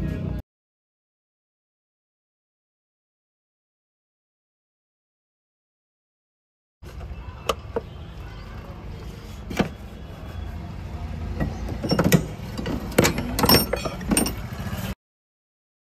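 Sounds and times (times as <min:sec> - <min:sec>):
workshop background hum: 0:06.8 - 0:15.0
hand tools clicking and knocking: 0:11.3 - 0:14.5.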